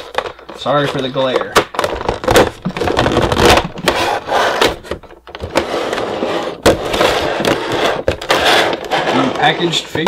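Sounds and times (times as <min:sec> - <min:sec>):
plastic packaging crinkling: 0:00.0 - 0:04.0.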